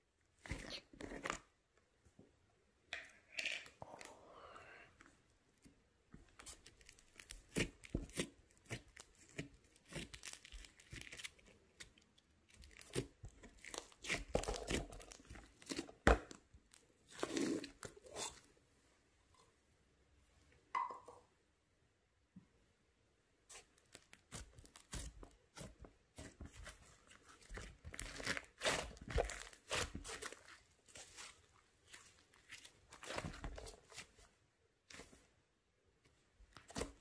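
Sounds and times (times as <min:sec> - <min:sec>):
slime crackling and popping: 0:06.4 - 0:15.8, 0:23.5 - 0:34.0.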